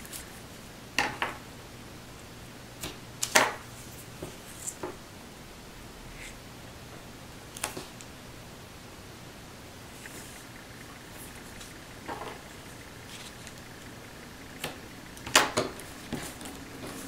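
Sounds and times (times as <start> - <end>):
paper and tape rustling: 11.1 - 13.7.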